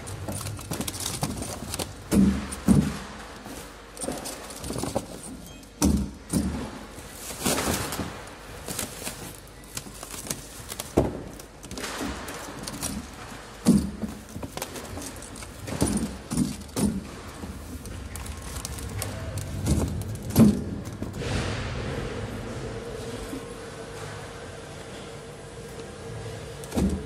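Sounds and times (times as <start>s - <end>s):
plastic wrap rustling: 0.0s - 5.6s, 6.6s - 21.2s
bottle packs thudding on wood: 0.0s - 21.2s
warehouse background noise: 0.0s - 27.0s.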